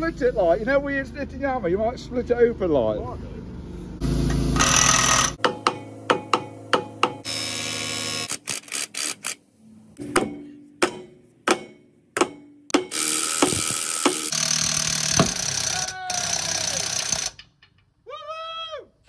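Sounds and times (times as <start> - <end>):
pneumatic tool bursts: 4.0 - 5.4, 12.9 - 17.4.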